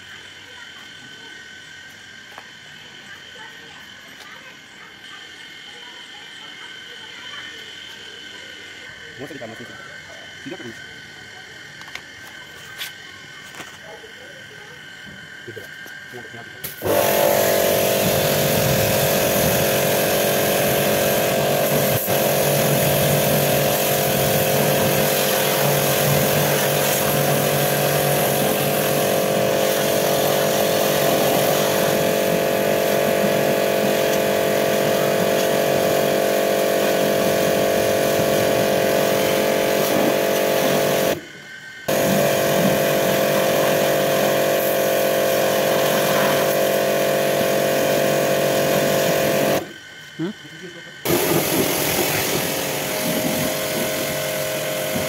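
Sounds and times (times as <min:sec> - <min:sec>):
pressure washer motor humming: 0:15.0 - 0:49.8, 0:51.0 - 0:55.0
water jet hissing: 0:16.6 - 0:41.2, 0:41.9 - 0:49.7, 0:51.0 - 0:55.0.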